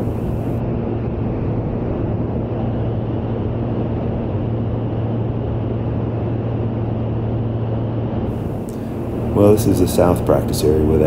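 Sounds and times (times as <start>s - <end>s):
rushing air: 0.0s - 0.6s, 8.2s - 11.0s
light aircraft engine humming: 0.0s - 11.0s.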